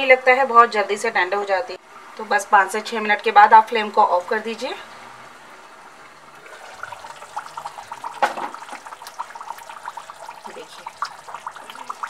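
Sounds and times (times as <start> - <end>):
gravy bubbling in pot: 3.0 - 12.0.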